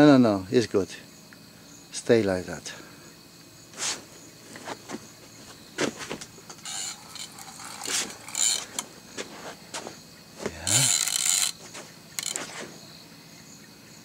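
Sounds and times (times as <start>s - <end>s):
fishing reel clicks: 6.5s - 8.9s, 10.7s - 12.6s
fishing reel rasping: 6.5s - 9.5s, 10.6s - 12.7s.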